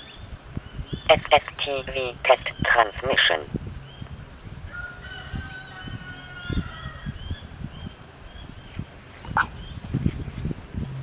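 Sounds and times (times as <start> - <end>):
small birds chirping: 0.0 - 3.1, 5.7 - 11.0
rooster crowing: 4.7 - 7.2.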